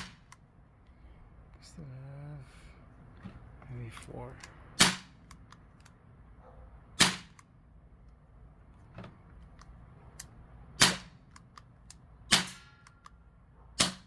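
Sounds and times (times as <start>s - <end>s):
air pistol shots: 0.0s - 0.4s, 4.8s - 5.2s, 7.0s - 7.4s, 10.8s - 11.2s, 12.2s - 13.0s, 13.8s - 14.0s.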